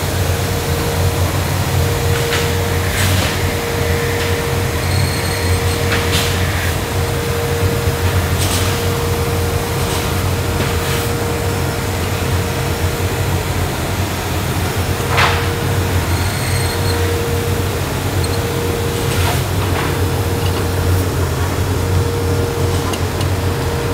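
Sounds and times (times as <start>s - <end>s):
woodworking machinery droning: 0.0s - 23.9s.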